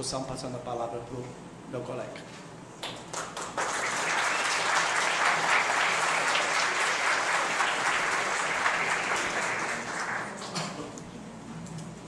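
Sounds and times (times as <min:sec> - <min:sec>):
audience applauding: 0:02.8 - 0:10.7.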